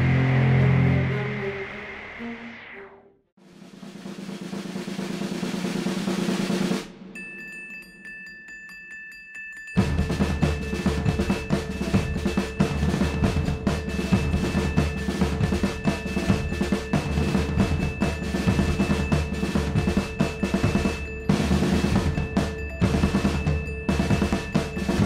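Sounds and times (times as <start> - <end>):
dramatic music with rapid drums: 3.4 - 7.2, 9.8 - 25.0.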